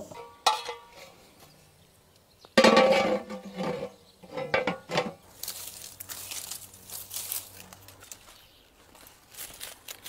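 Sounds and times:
brittle crinkling and crackling: 5.2s - 10.0s.

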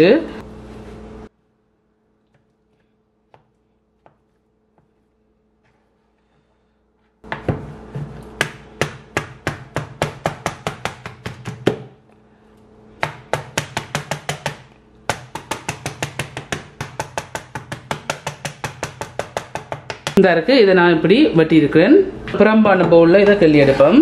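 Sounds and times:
knife chopping on cutting board: 7.2s - 12.0s, 13.0s - 20.2s.

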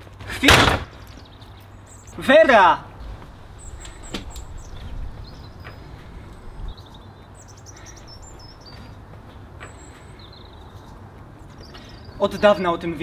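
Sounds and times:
outdoor background noise: 0.0s - 13.0s
small birds chirping and trilling: 1.0s - 13.0s.

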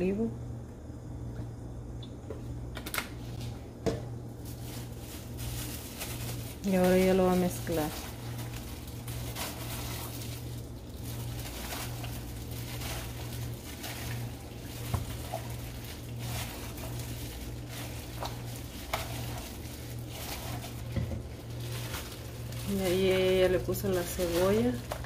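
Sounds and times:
steady low hum: 0.0s - 25.0s
plastic glove rustling: 3.4s - 25.0s
wet squishing of raw chicken: 8.0s - 20.8s.

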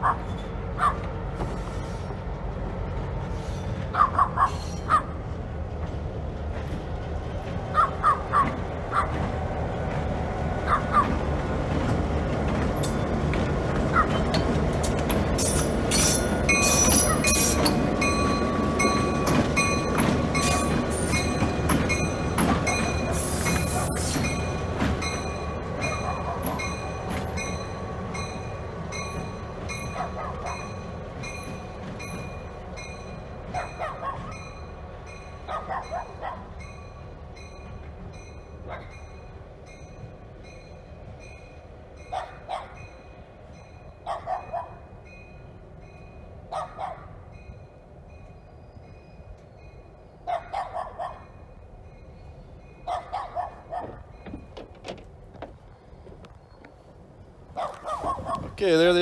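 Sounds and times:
diesel locomotive engine running: 0.0s - 44.1s
locomotive bell ringing: 14.2s - 33.5s.

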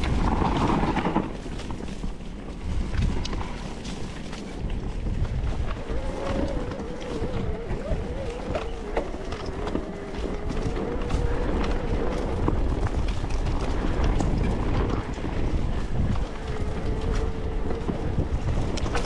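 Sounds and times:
bike rattling: 0.0s - 19.0s
wind rumble: 0.0s - 19.0s.

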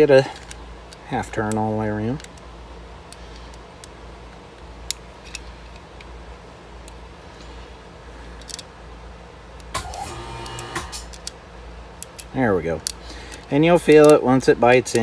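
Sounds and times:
allen wrench clicks and taps: 8.4s - 8.7s, 12.0s - 15.0s
low hum: 9.6s - 11.8s.

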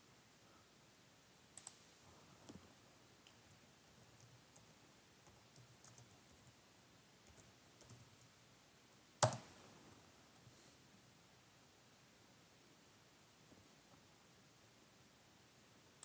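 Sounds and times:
faint small clicks: 1.6s - 1.8s.

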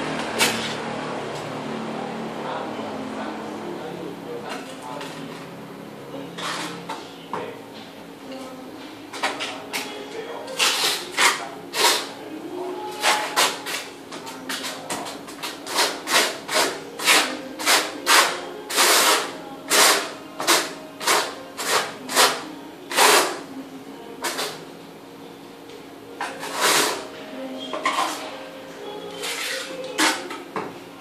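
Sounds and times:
trowel scraping tile adhesive: 6.4s - 6.8s, 10.5s - 12.1s, 14.5s - 23.4s, 26.2s - 27.1s, 27.7s - 28.3s, 29.1s - 30.3s.

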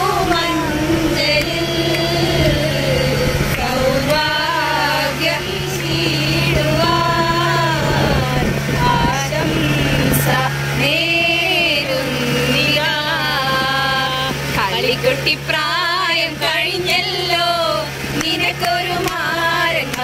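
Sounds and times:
steady low hum: 0.0s - 20.0s
women singing: 0.0s - 20.0s.

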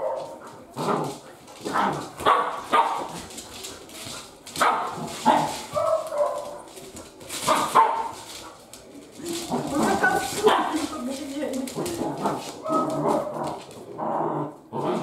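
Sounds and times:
dogs barking and yipping: 0.0s - 0.5s, 1.5s - 11.1s, 11.8s - 13.7s.

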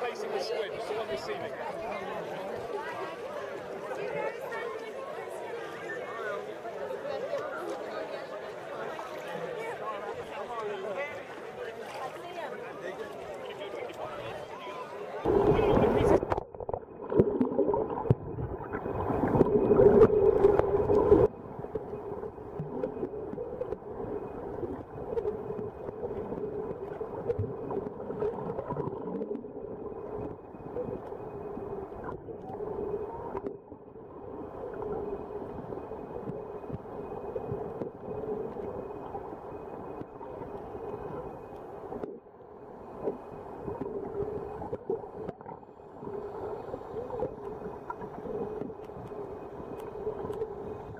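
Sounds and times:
underwater low hum: 11.0s - 50.9s.

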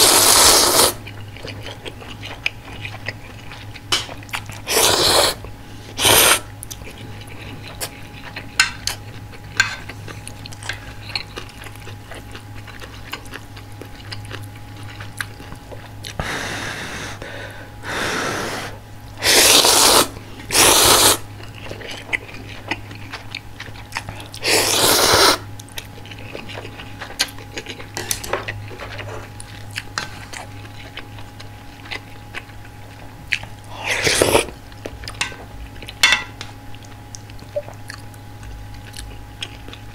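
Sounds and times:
person slurping noodles: 0.0s - 1.0s, 4.7s - 5.4s, 6.0s - 6.5s, 17.9s - 21.2s, 24.4s - 25.4s, 33.7s - 34.5s
chewing and mouth clicks: 1.0s - 4.6s, 6.5s - 16.2s, 21.4s - 24.4s, 25.5s - 39.9s.

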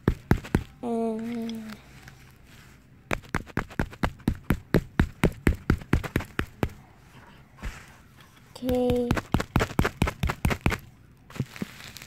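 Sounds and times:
hammer striking foil ball: 0.0s - 0.8s, 3.1s - 6.8s, 8.6s - 10.9s.

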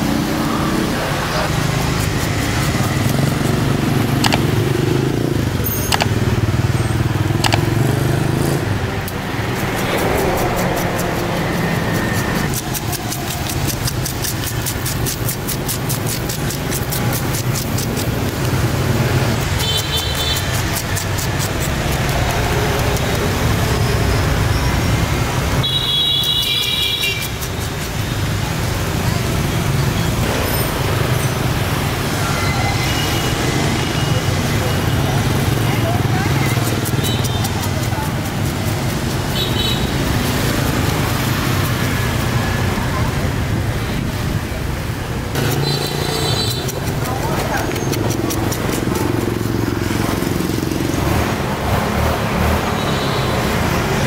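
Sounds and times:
traffic passing: 0.0s - 54.0s
sharp clicks: 4.1s - 4.9s, 5.9s - 6.2s, 7.4s - 8.0s.

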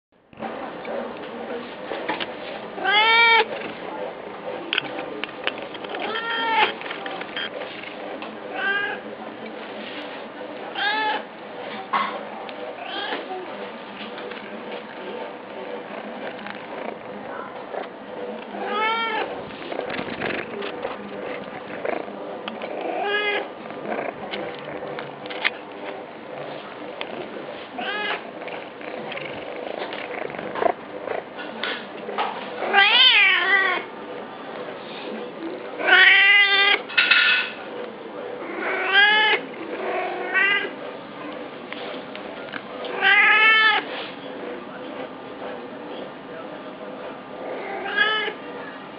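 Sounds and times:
cat meowing: 2.8s - 3.5s, 6.0s - 6.7s, 10.8s - 11.2s, 18.6s - 19.3s, 32.7s - 33.9s, 35.8s - 36.8s, 38.6s - 39.4s, 43.0s - 43.8s.

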